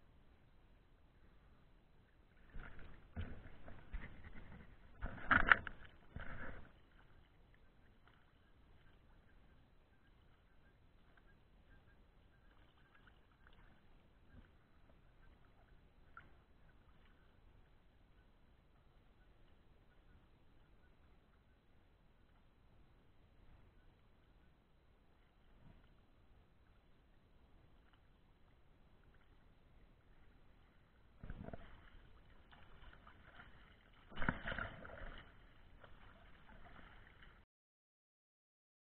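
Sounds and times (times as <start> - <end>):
water lapping and splashing: 2.3 - 18.3, 25.2 - 37.4
swimming strokes splashing: 31.2 - 37.4.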